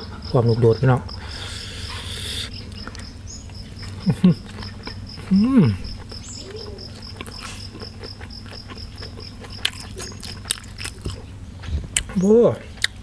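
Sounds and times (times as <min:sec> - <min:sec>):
cricket chirping: 0:00.0 - 0:11.4
man chewing food: 0:00.0 - 0:13.0
man humming: 0:05.3 - 0:05.9.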